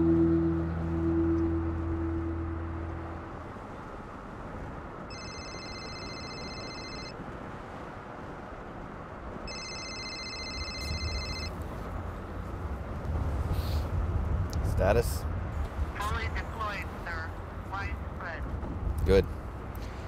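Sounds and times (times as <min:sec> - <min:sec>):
low rumble: 0:00.0 - 0:05.1, 0:10.7 - 0:20.0
electronic telephone ringing: 0:05.1 - 0:07.2, 0:09.5 - 0:11.5.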